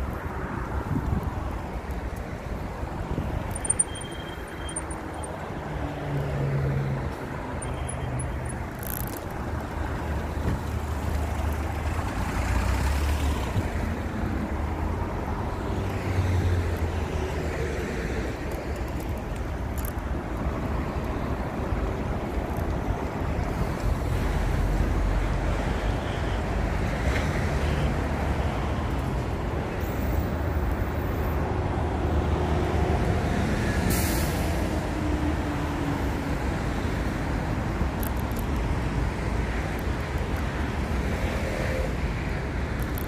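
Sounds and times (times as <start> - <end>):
vehicle engine rumble: 0.0 - 25.4
road traffic passing: 0.0 - 43.0
wind noise on microphone: 0.3 - 5.7.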